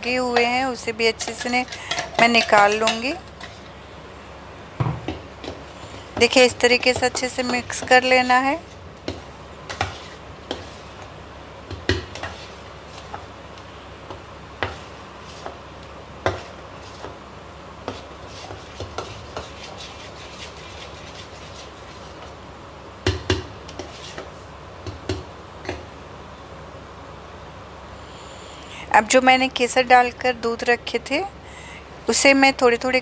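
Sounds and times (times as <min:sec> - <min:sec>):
metal spoon scraping steel bowl: 0:00.4 - 0:03.7.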